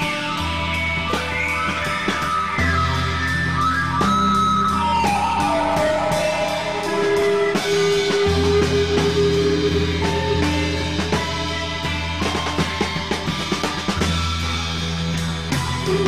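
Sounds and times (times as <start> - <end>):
bass and drums: 0.0 - 16.0
guitar bending notes: 0.0 - 16.0.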